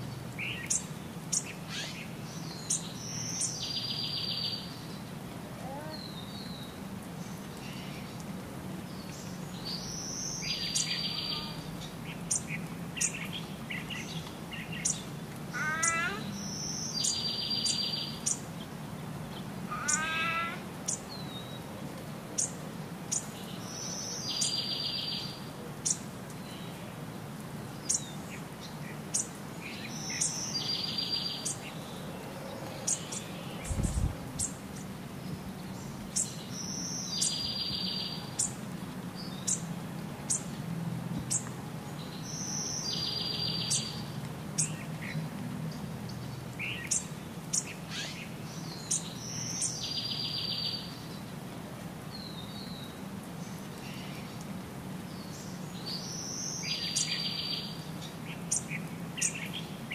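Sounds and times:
birds chirping: 0.0s - 8.3s, 8.9s - 21.7s.

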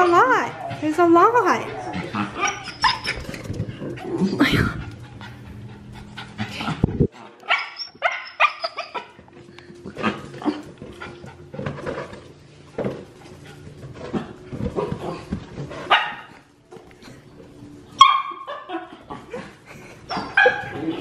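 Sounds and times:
small dog yipping: 2.4s - 3.3s, 7.5s - 9.1s.

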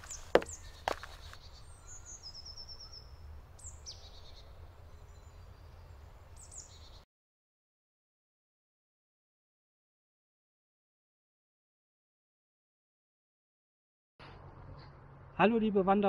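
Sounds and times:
forest birds calling: 0.0s - 7.0s.

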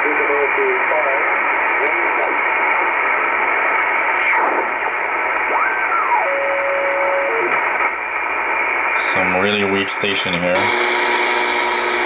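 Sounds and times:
shortwave radio static: 0.0s - 12.0s
gliding radio whistling tones: 2.1s - 7.9s.

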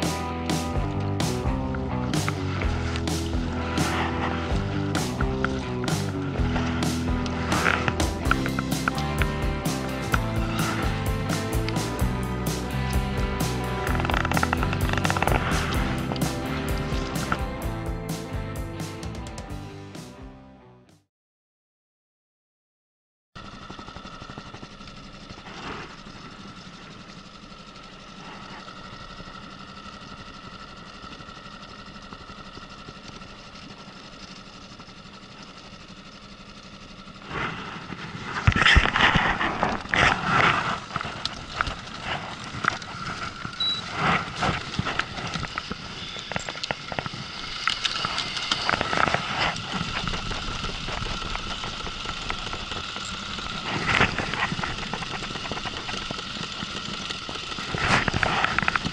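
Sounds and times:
boat motor running: 0.0s - 20.0s, 23.4s - 58.9s
fishing rod clatter: 2.1s - 11.9s, 13.5s - 17.4s
fishing reel clicking: 2.2s - 17.5s, 39.8s - 58.9s.

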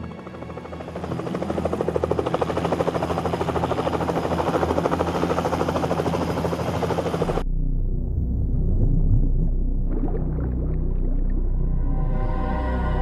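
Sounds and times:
helicopter rotor blades chopping: 0.0s - 7.4s.

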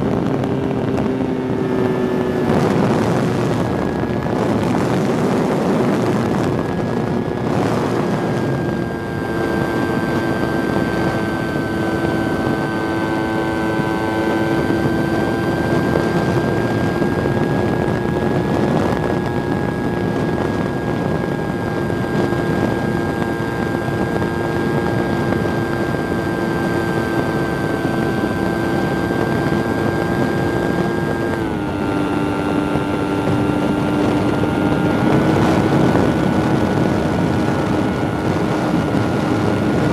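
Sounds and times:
model plane motor whine: 0.0s - 39.9s
wind on microphone: 0.0s - 39.9s.

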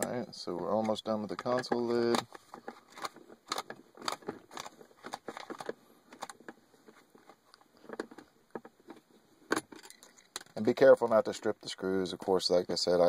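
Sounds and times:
screwdriver clicking and scraping: 0.8s - 10.6s.

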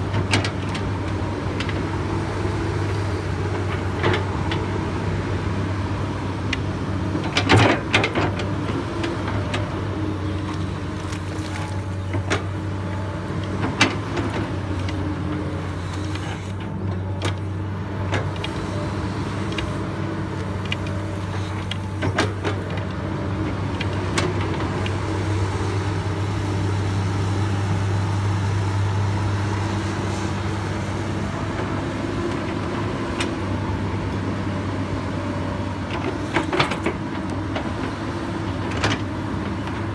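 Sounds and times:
excavator diesel engine running: 0.0s - 39.9s
digging equipment knocks and clanks: 20.4s - 24.9s, 35.9s - 37.9s.

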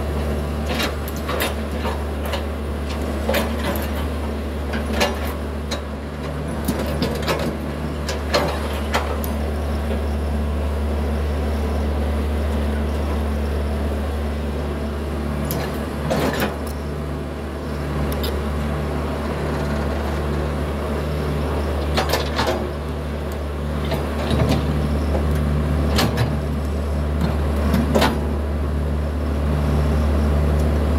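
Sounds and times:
excavator diesel engine running: 0.0s - 30.9s
excavator bucket clanks and knocks: 25.9s - 26.4s.

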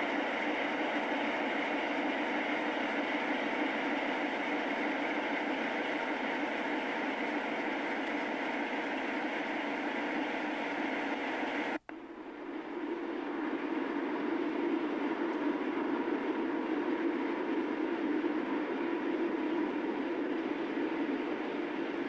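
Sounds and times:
train rumbling: 0.0s - 11.8s.

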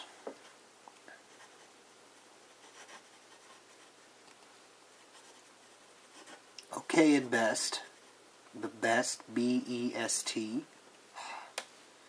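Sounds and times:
pen nib scratching on paper: 1.2s - 4.0s, 5.0s - 6.4s.

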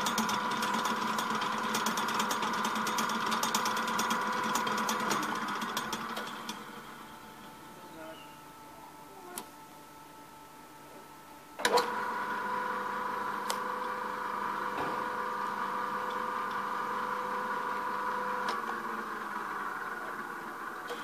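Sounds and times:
mixer motor whining: 0.0s - 8.4s, 11.6s - 21.0s
mixer switch click: 13.4s - 13.7s.

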